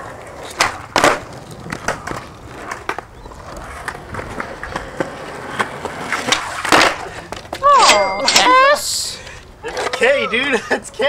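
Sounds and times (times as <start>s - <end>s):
skateboard rolling on concrete: 0.0s - 7.8s, 8.5s - 11.0s
skateboard clacks: 0.0s - 8.8s.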